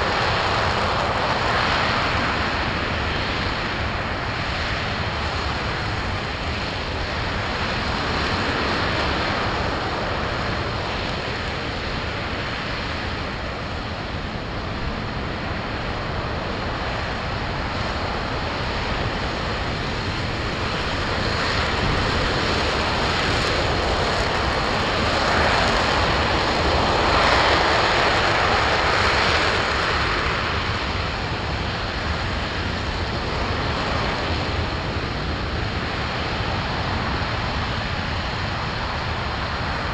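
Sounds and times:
rocket engine roaring: 0.0 - 39.9.

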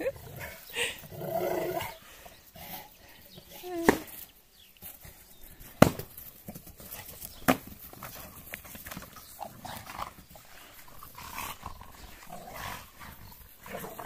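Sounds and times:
dogs scuffling on grass: 3.4 - 14.0.

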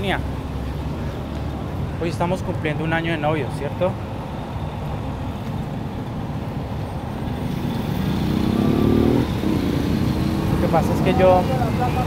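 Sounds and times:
street traffic rumbling: 0.0 - 12.0
vehicle engine speeding up: 7.6 - 11.1.

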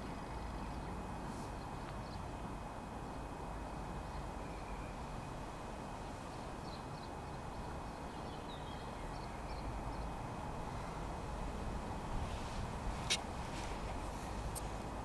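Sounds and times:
faint bird chirps: 4.0 - 5.2.

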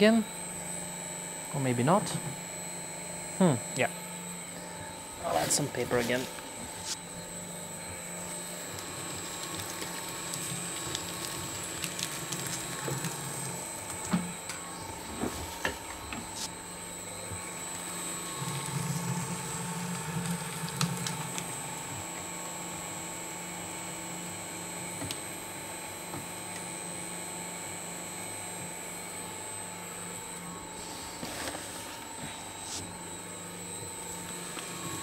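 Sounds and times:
paper shredder motor hum and whine: 0.0 - 35.0.

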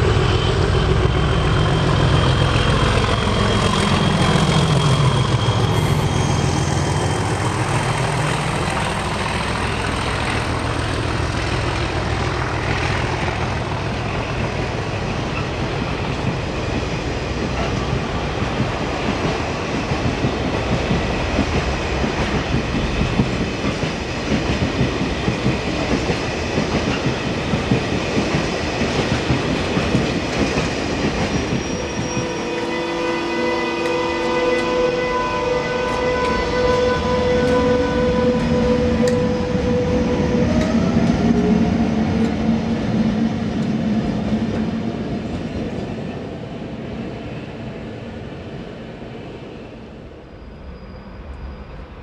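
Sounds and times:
diesel locomotive engine passing: 0.0 - 52.0
train wheels rumbling on rails: 0.0 - 52.0.

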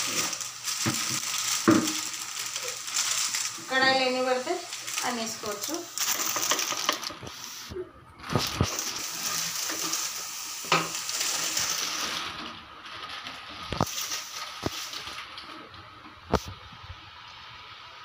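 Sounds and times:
fritters sizzling in hot oil: 0.0 - 7.7, 8.3 - 12.2, 13.7 - 15.2
utensils knocking on pan: 10.6 - 11.0.

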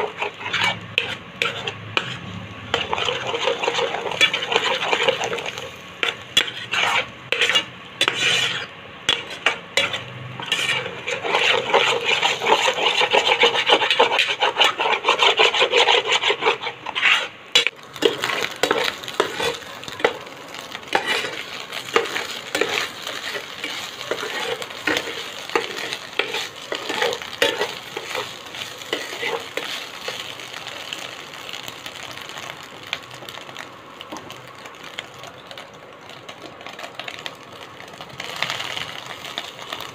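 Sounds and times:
spatula scraping a pan: 0.0 - 30.6
egg sizzling: 0.0 - 39.9.

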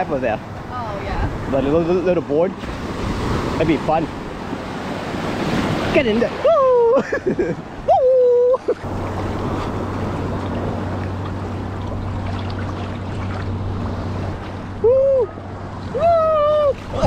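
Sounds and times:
steady low hum: 7.0 - 17.0
person calling woo: 7.9 - 8.8, 14.8 - 17.0
sea water sloshing: 8.4 - 17.0.

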